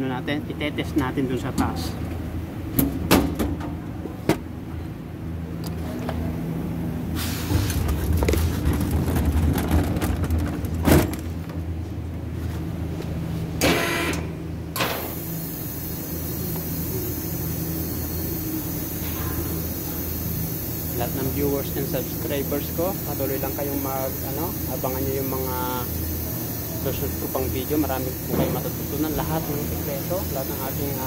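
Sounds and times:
low machine hum: 0.0s - 31.0s
steady hiss: 15.1s - 31.0s.

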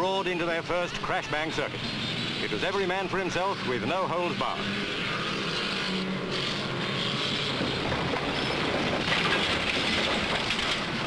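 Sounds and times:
racing car engines: 0.0s - 11.0s.

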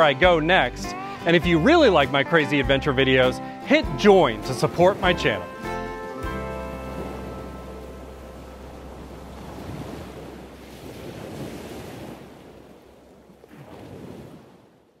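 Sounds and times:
wind: 0.0s - 15.0s
ocean surf on sandy beach: 4.4s - 15.0s.

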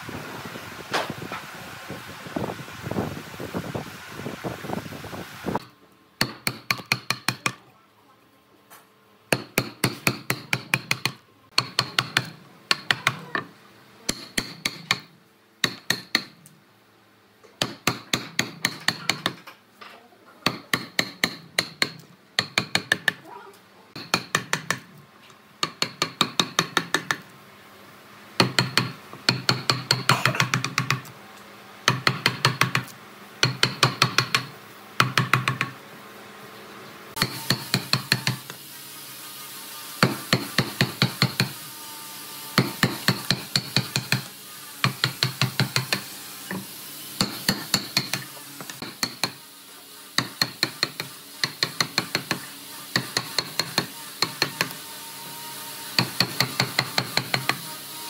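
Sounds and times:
mallet striking wood chisel: 6.2s - 7.6s, 9.3s - 13.2s, 14.1s - 16.4s, 17.6s - 19.4s, 20.4s - 23.2s, 24.0s - 24.9s, 25.6s - 27.2s, 28.4s - 31.1s, 31.9s - 35.8s, 37.2s - 38.5s, 40.0s - 41.6s, 42.6s - 46.6s, 47.2s - 49.4s, 50.2s - 54.8s, 56.0s - 57.6s.

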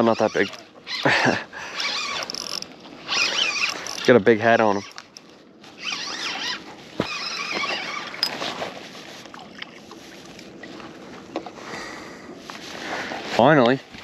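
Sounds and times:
fishing reel gears whirring: 0.0s - 8.6s.

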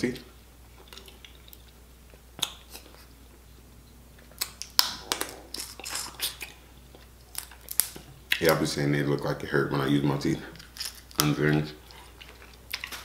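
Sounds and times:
shell crunching: 4.4s - 6.5s, 10.6s - 11.4s
crab shell cracking between teeth: 4.4s - 6.6s, 7.3s - 8.6s.

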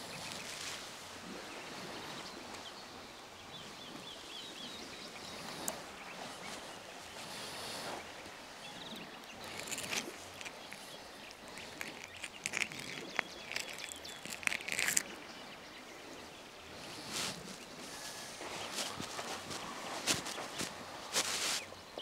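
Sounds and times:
small clicks of fishing tackle: 9.2s - 15.2s
footsteps in sand: 16.8s - 22.0s
cloth rustling: 16.9s - 21.7s.

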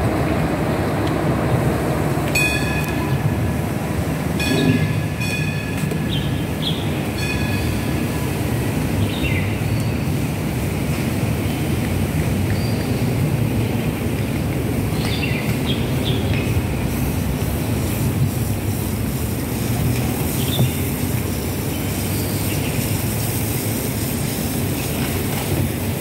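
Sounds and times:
light rail train rumbling: 0.0s - 26.0s
high ringing tones: 4.4s - 6.0s, 7.1s - 8.1s.

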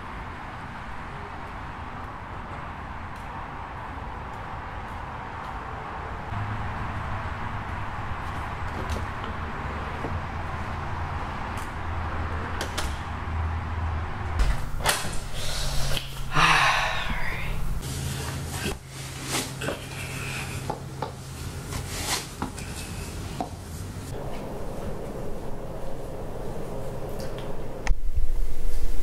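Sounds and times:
low steady hum: 0.0s - 29.0s
front door closing: 14.3s - 15.4s.

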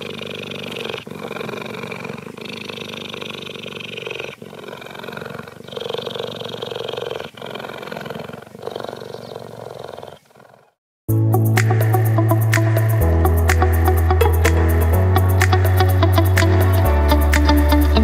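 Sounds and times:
cheetah purring: 0.0s - 10.8s.

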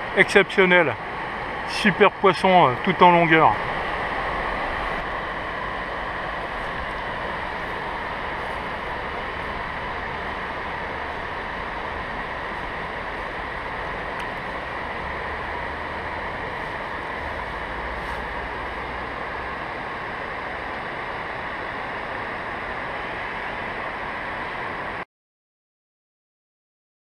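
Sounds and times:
river water pouring over weir: 0.0s - 20.7s.

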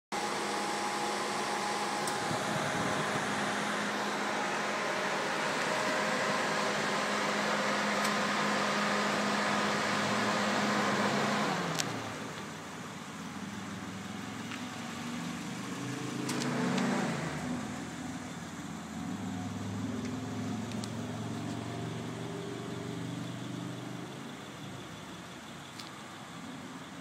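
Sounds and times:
electric fan humming: 0.2s - 9.6s.

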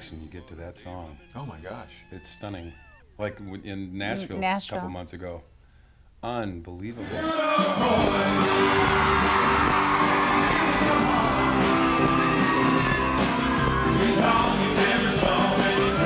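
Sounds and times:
crowd yelling and whooping: 1.1s - 3.1s, 7.0s - 16.0s
steady drum beat: 7.6s - 16.0s
acoustic guitars: 8.0s - 16.0s
person singing: 13.8s - 16.0s.

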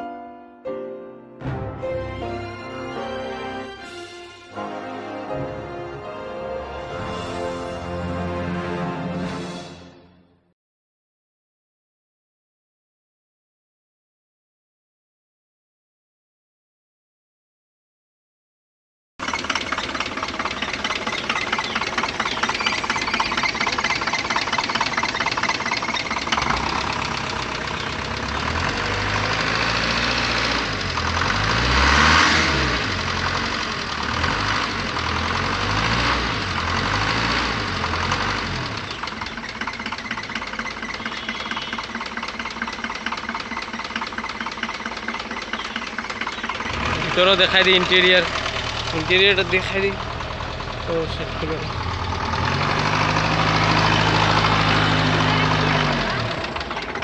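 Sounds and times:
car engine revving and idling: 19.2s - 57.0s.

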